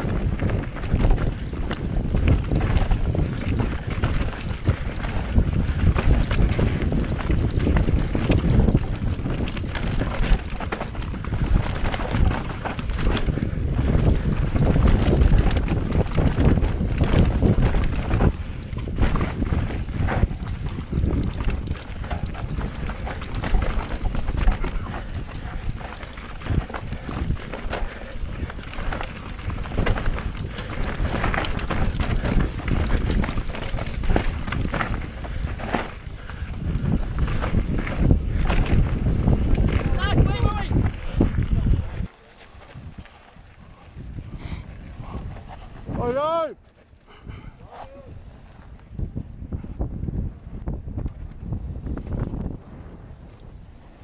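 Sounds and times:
tyres rumbling: 0:00.0 - 0:42.4
bike rattling over rough ground: 0:00.0 - 0:54.0
wind rushing over microphone: 0:00.0 - 0:54.0.

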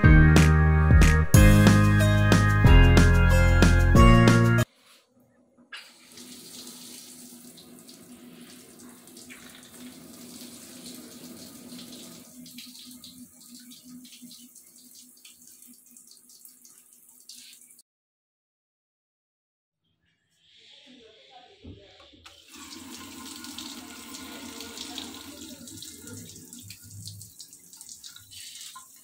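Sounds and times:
tap water running into steel sink: 0:06.0 - 0:17.8, 0:22.3 - 0:29.0.

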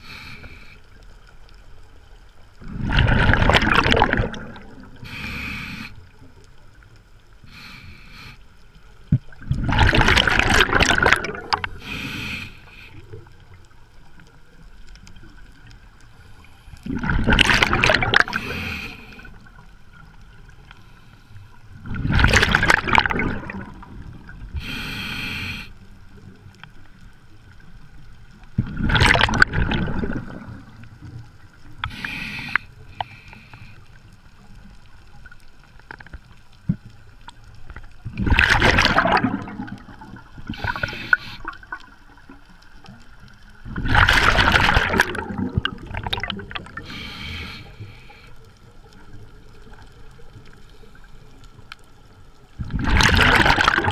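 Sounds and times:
exhaled bubbles rushing: 0:02.6 - 0:05.0, 0:09.3 - 0:11.8, 0:16.8 - 0:18.5, 0:21.8 - 0:24.6, 0:28.6 - 0:30.9, 0:38.1 - 0:41.9, 0:43.6 - 0:47.0, 0:52.6 - 0:53.9
regulator hiss: 0:24.6 - 0:25.8.

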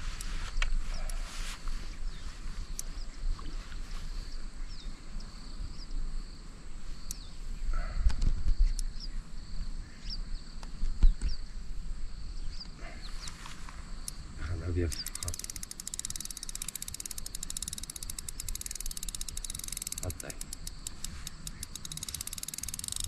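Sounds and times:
thin insect hum: 0:00.0 - 0:23.0
birds chirping: 0:06.9 - 0:23.0
wind and moving water: 0:15.0 - 0:23.0.

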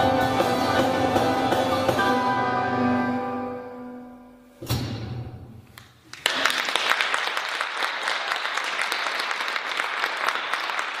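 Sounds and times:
piano and drums chord: 0:00.0 - 0:05.4
audience applause: 0:06.1 - 0:11.0.

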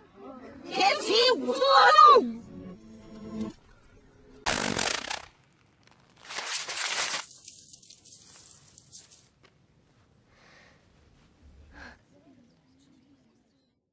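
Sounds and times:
loud noise bursts: 0:04.5 - 0:05.4.

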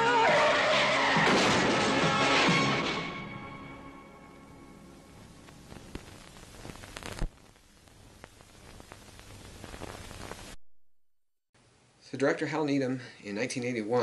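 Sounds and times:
film soundtrack hiss: 0:01.9 - 0:10.6
crackles and pops: 0:04.9 - 0:10.6.

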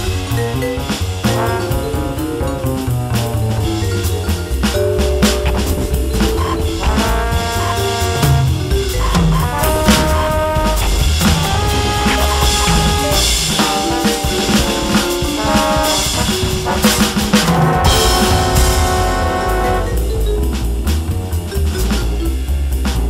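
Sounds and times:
electronic drums playing swing: 0:00.0 - 0:23.0
held pitched synth notes: 0:04.9 - 0:17.0.

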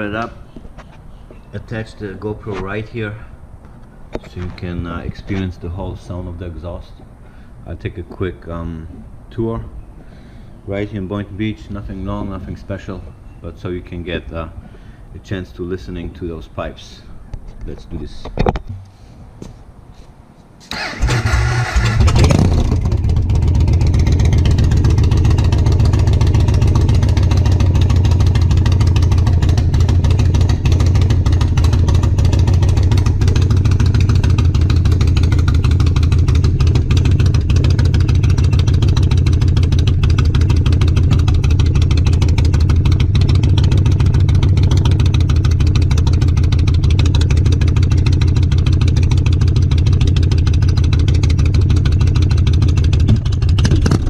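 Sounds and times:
motorcycle engine idling: 0:21.6 - 0:54.0.

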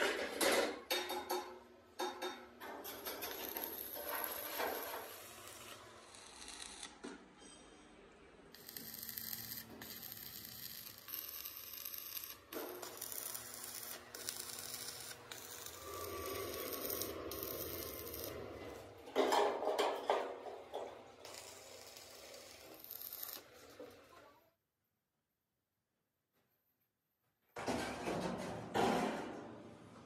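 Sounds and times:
welding arc crackling and sizzling: 0:02.8 - 0:07.0, 0:08.5 - 0:19.0, 0:21.2 - 0:24.1.

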